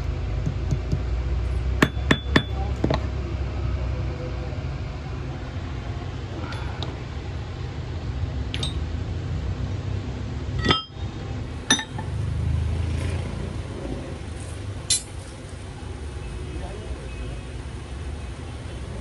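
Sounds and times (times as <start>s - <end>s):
small sharp metal clinks: 14.9s - 15.2s.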